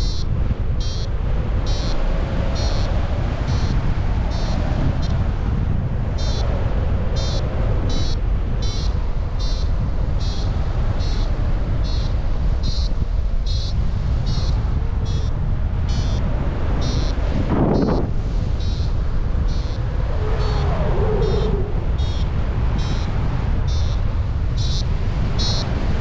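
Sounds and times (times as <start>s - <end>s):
wind noise on microphone: 0.0s - 26.0s
variometer short beeps: 0.8s - 1.1s, 1.7s - 2.0s.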